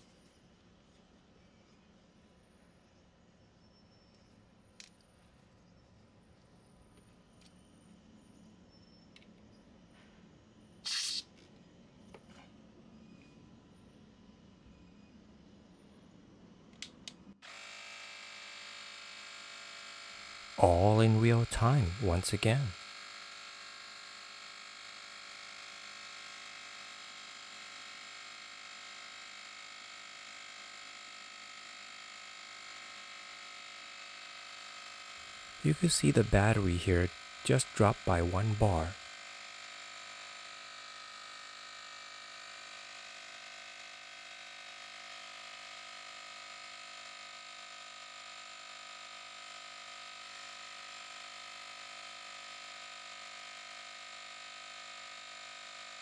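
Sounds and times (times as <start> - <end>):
tire inflator compressor running: 10.9 - 11.2, 17.4 - 35.8, 37.0 - 37.4, 38.6 - 56.0
tire inflator compressor whining: 10.9 - 11.2, 22.8 - 35.7.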